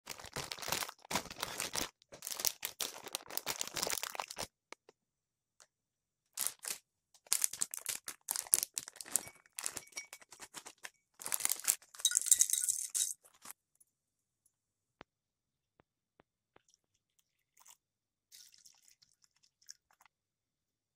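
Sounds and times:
plastic packaging crinkling: 0.0s - 4.6s, 6.4s - 13.5s.

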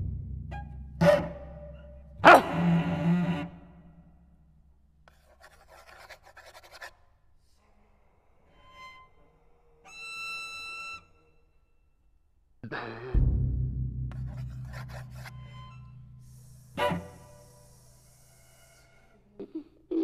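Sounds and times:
low rumble: 0.0s - 1.0s, 13.2s - 16.6s
scratchy cello noise: 0.5s - 3.8s, 5.1s - 6.9s, 14.1s - 19.4s.

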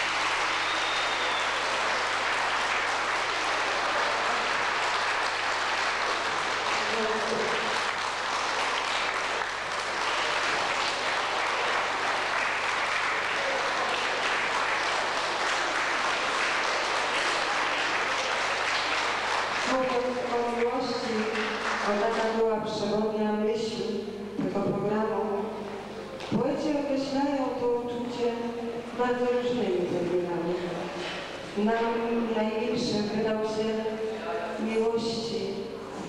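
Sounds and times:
audience applauding: 0.0s - 22.4s.

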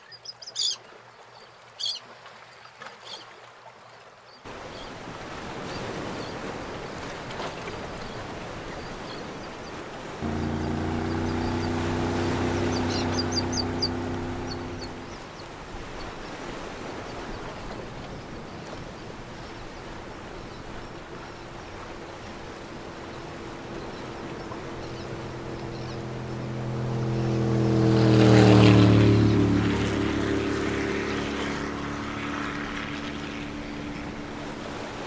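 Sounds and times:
water wash: 4.5s - 35.0s
low motor drone: 10.2s - 15.5s, 20.2s - 35.0s
high bird calls: 10.3s - 15.5s.

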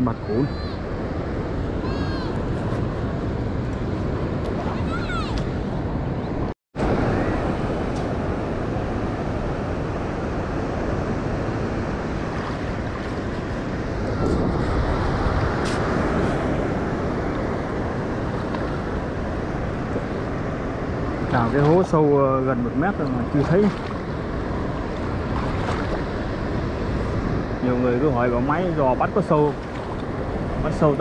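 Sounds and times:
wind buffeting microphone: 0.0s - 31.0s
surf washing on beach: 6.8s - 31.0s.

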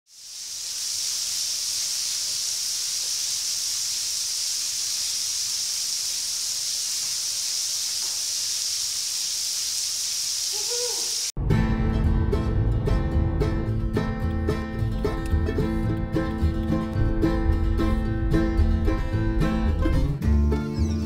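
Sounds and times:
waterfall splashing onto rocks: 0.1s - 11.4s.

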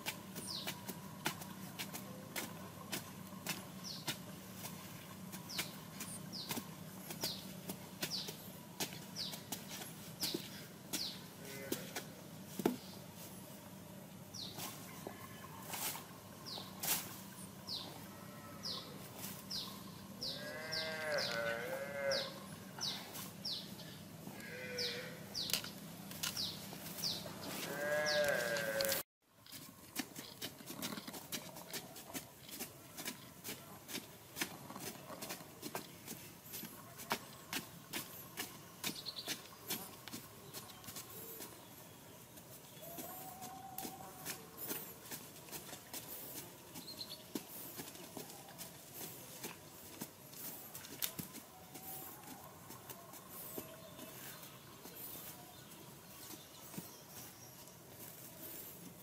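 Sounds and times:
bamboo poles stabbing dry soil: 0.0s - 12.9s, 27.5s - 59.0s
farm animal bleating: 11.2s - 12.1s, 17.8s - 19.1s, 20.2s - 23.2s, 24.2s - 25.5s, 27.4s - 29.0s.

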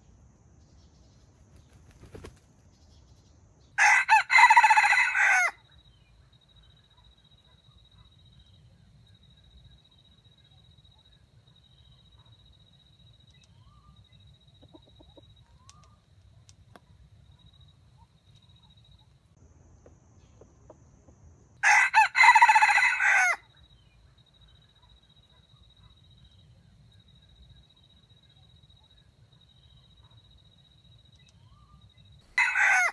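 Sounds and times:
rooster crowing: 3.8s - 5.6s, 21.6s - 23.5s, 32.3s - 32.9s.

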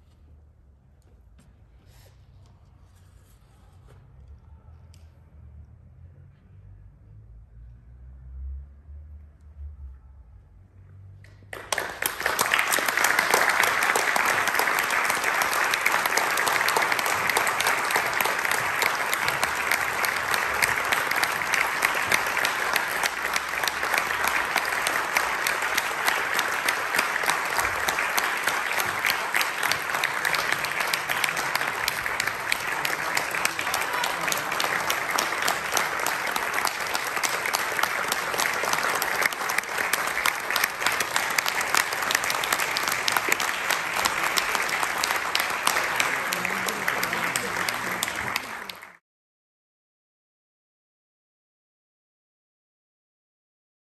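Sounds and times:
audience applauding: 11.5s - 49.0s.

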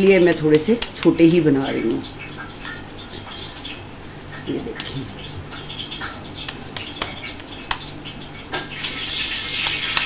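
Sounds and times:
hands patting meat mixture: 6.4s - 8.7s.

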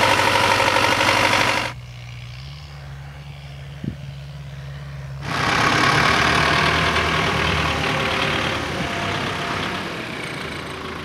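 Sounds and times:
diesel tractor engine running: 0.0s - 2.5s, 5.2s - 11.0s.

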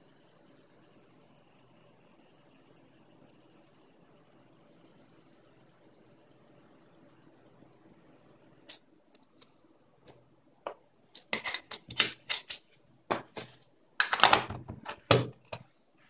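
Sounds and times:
clicks taps and metallic clatter: 10.7s - 15.7s.

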